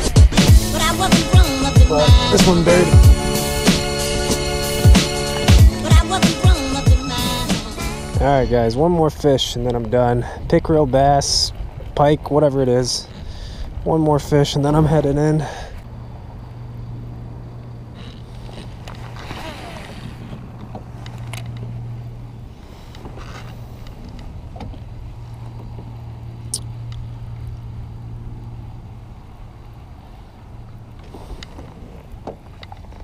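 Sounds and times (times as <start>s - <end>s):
fishing reel gears humming: 16.0s - 24.1s.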